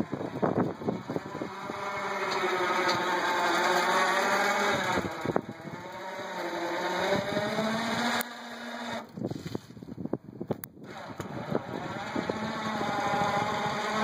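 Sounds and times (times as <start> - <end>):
electric motor whining: 0.0 - 9.8, 10.6 - 14.0.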